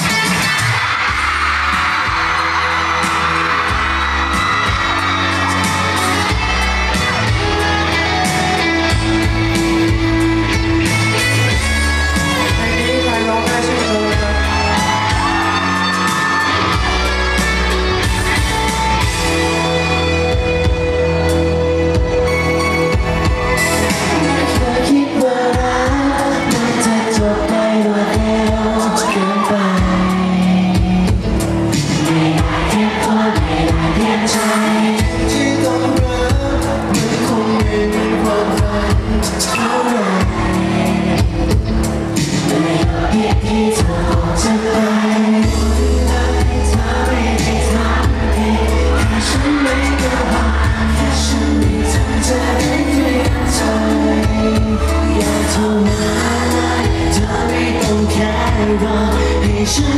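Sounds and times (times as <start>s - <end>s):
heavy bass and percussion: 0.0s - 59.9s
pop backing track: 0.0s - 59.9s
man singing: 5.7s - 17.4s, 23.8s - 41.6s, 42.2s - 59.9s.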